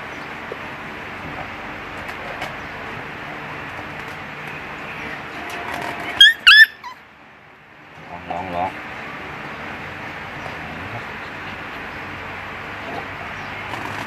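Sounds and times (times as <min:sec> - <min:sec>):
dog yelping: 0:06.2 - 0:07.0.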